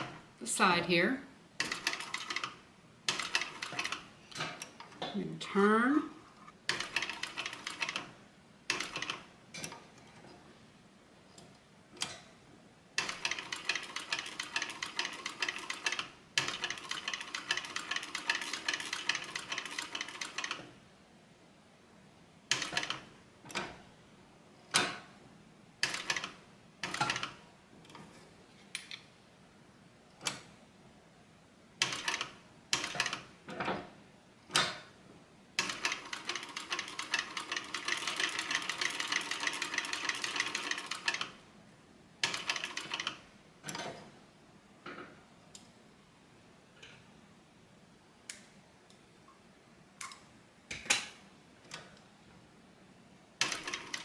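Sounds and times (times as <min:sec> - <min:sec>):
sewing machine stitching: 0:06.7 - 0:08.1, 0:13.0 - 0:20.7, 0:35.6 - 0:41.3, 0:53.4 - 0:54.0.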